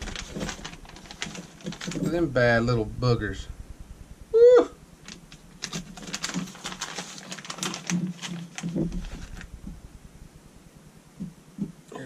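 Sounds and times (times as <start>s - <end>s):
plastic packaging crinkling: 0.0s - 2.4s, 5.0s - 9.8s.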